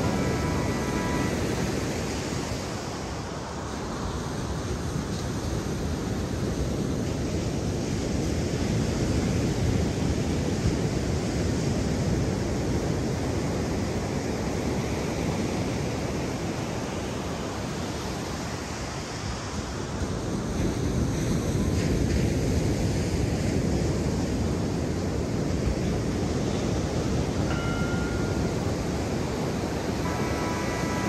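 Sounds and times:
wind on microphone: 0.0s - 18.4s
ocean surf rushing: 0.0s - 31.0s.

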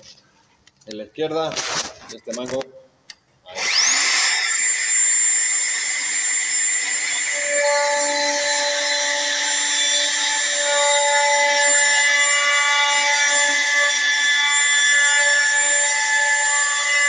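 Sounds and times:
router whining cutting wood: 3.5s - 17.0s.

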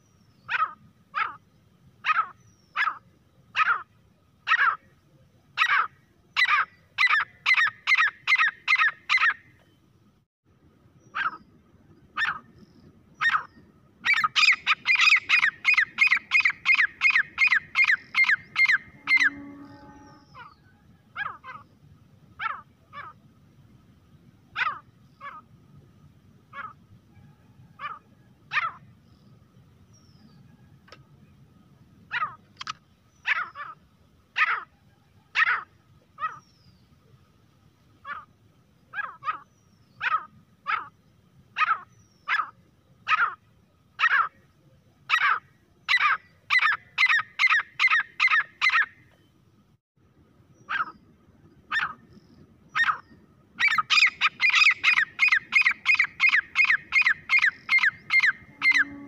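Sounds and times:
francolin calling: 5.6s - 9.8s, 13.2s - 21.7s, 45.1s - 49.0s, 50.5s - 59.0s.

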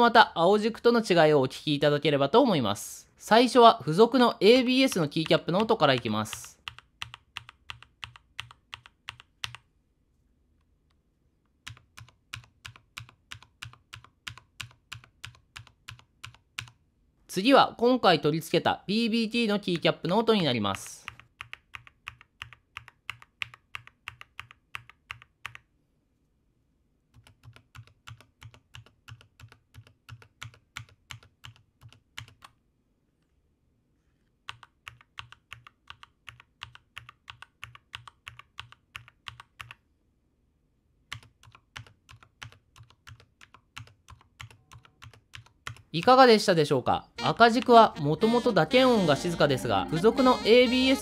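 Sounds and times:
mechanical keyboard typing: 4.8s - 9.7s, 11.6s - 16.8s, 21.1s - 25.7s, 27.1s - 32.6s, 34.5s - 39.8s, 41.1s - 46.0s.

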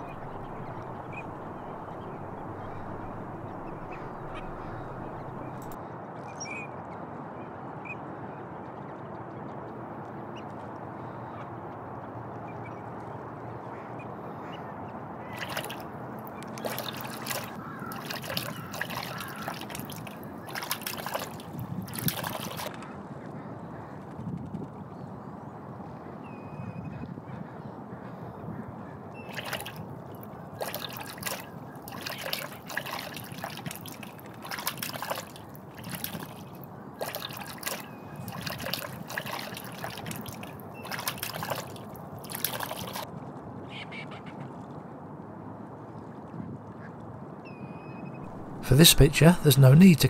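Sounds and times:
duck splashing in water: 0.0s - 5.8s, 15.2s - 22.7s, 29.2s - 43.0s.

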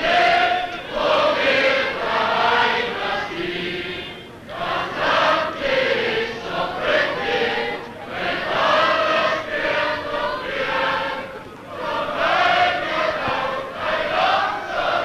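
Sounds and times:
choir singing held notes: 0.0s - 15.0s.

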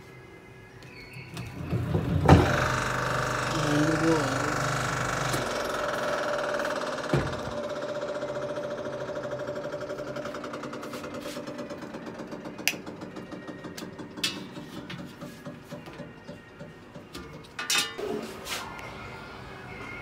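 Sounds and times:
washing machine knocking: 1.6s - 17.4s.

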